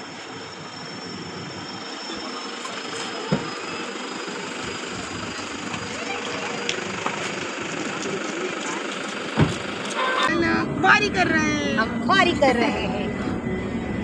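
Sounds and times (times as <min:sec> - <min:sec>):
pickup engine idling: 0:00.0 - 0:10.3.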